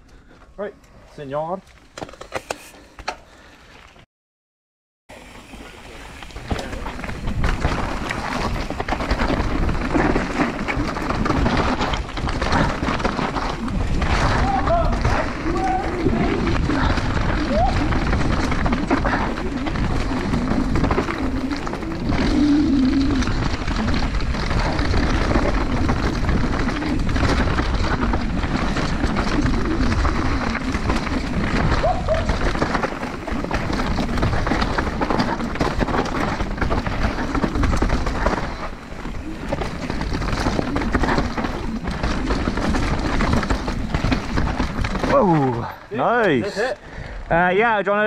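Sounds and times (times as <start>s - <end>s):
wind and tyre rush: 5.1s - 47.8s
bike clattering over bumps: 5.2s - 46.4s.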